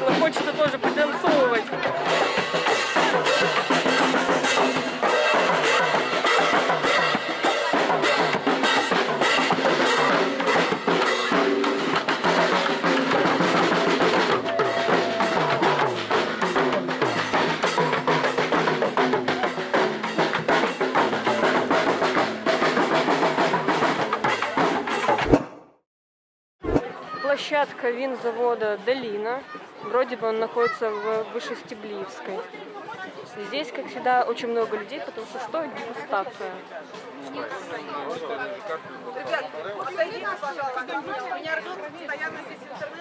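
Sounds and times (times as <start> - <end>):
marching drum line: 0.0 - 25.6.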